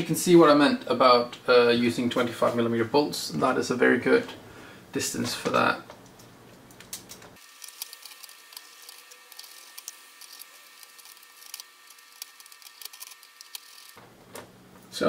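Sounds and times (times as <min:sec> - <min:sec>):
screwdriver working on bolts: 0:07.4 - 0:14.0.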